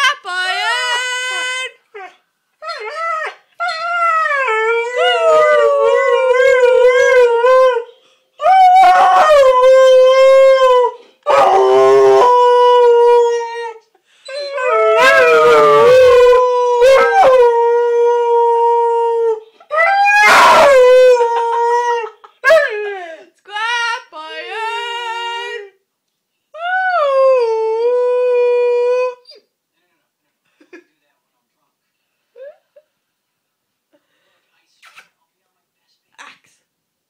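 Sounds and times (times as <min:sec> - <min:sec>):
dog howling: 0:02.0 - 0:13.8, 0:14.4 - 0:23.0
person shouting calls: 0:23.5 - 0:25.7.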